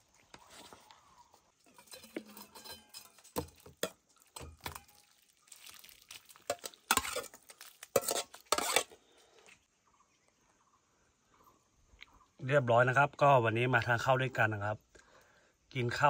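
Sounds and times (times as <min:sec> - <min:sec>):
utensil scraping a dish: 0:01.6 - 0:03.4, 0:07.9 - 0:09.0.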